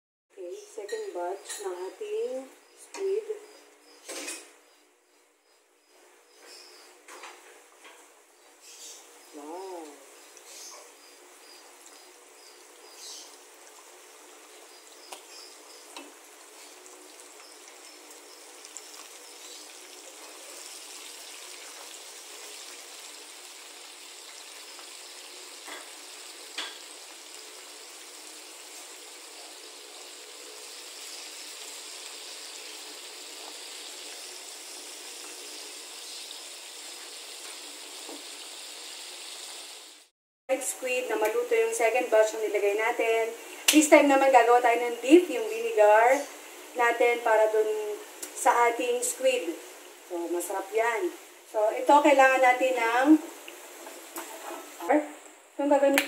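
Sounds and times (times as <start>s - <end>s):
squid deep-frying in hot oil: 9.5s - 40.1s, 43.7s - 54.9s.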